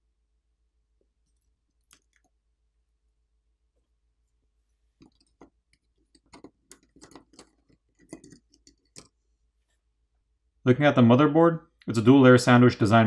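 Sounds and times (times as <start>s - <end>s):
faint small clicks and taps: 1.2s - 2.4s, 5.0s - 9.2s.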